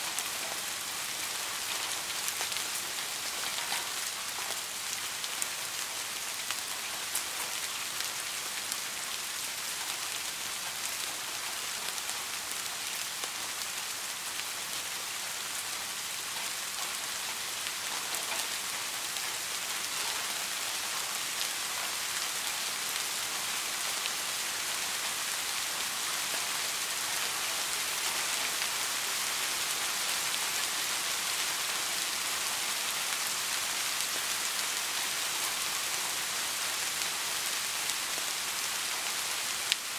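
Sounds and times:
steady rain falling: 0:00.0 - 0:39.9.

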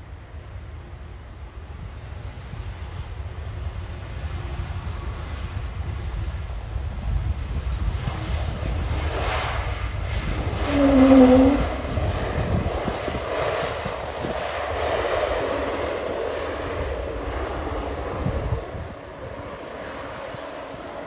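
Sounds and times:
jet engines running: 0:02.7 - 0:21.0
humming tone dipping in pitch: 0:10.6 - 0:12.0.

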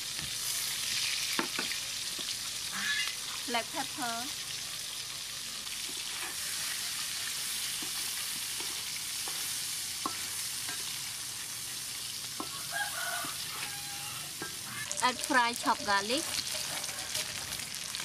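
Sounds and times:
shrimp sizzling in hot oil: 0:00.0 - 0:18.0
spatula scraping a wok: 0:04.4 - 0:18.0.

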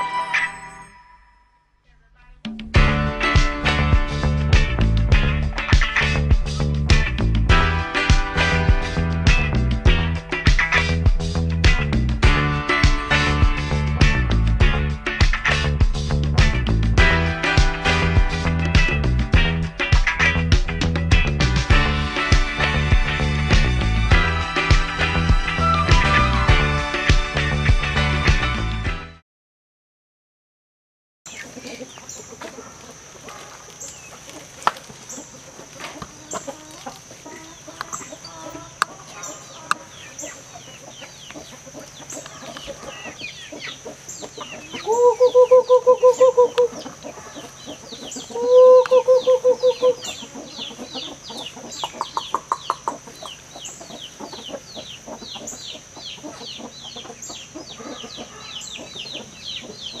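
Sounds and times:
chicken pulsing calls: 0:31.3 - 1:00.0
chickens clucking: 0:31.3 - 1:00.0
fast high chirping: 0:47.9 - 0:57.4.

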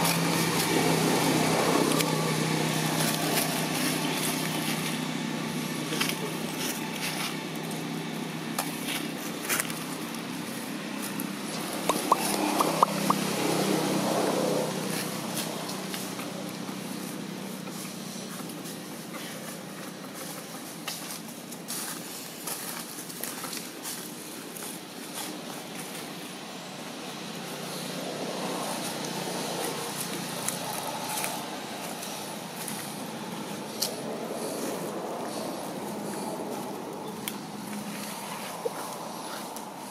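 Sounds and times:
distant engine traffic hum: 0:00.0 - 0:39.9
short rising squeaky calls: 0:11.9 - 0:13.3.

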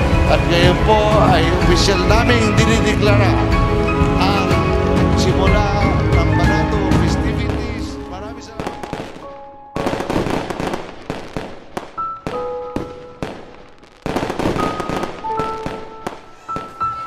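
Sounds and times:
fireworks crackling and popping: 0:07.0 - 0:17.0.

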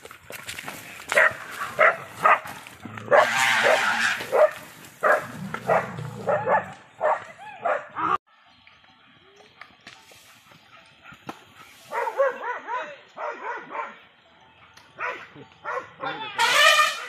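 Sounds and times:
dog barking: 0:01.2 - 0:02.5, 0:03.1 - 0:08.0, 0:11.9 - 0:14.0, 0:15.0 - 0:16.1.

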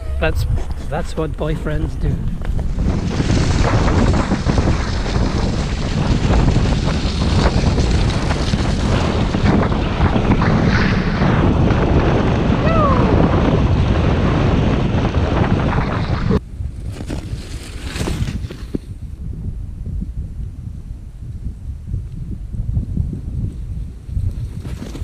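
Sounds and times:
wind rushing over microphone: 0:00.0 - 0:25.0
skis scraping over snow: 0:00.4 - 0:11.4, 0:15.4 - 0:19.0.

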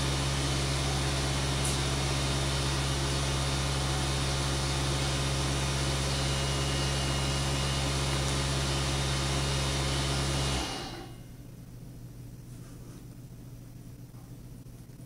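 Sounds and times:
machine hum with rushing noise: 0:00.0 - 0:12.0.

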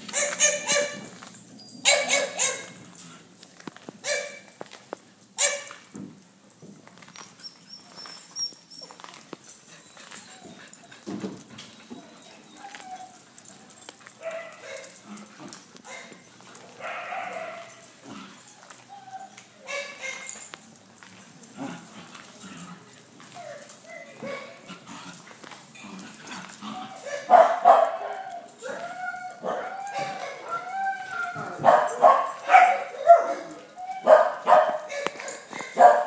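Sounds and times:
small dogs barking: 0:00.1 - 0:01.0, 0:01.8 - 0:02.8, 0:04.0 - 0:04.5, 0:14.1 - 0:15.1, 0:15.8 - 0:18.5, 0:19.6 - 0:20.5, 0:23.4 - 0:24.7, 0:26.7 - 0:30.7, 0:31.3 - 0:36.0.

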